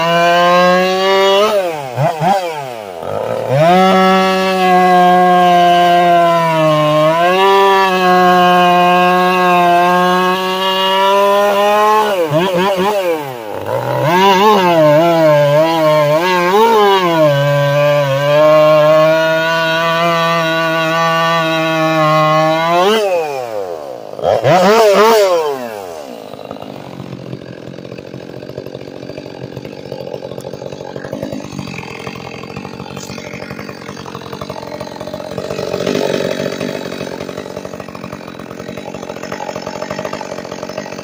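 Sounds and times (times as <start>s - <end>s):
chainsaw revving and idling: 0.0s - 41.0s.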